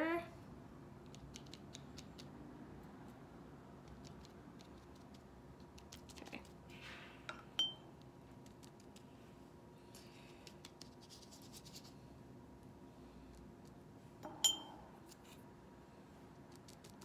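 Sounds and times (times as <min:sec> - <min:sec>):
brush dabbing on wet paper: 0:10.1 - 0:12.1
short ringing clink: 0:14.3 - 0:14.8.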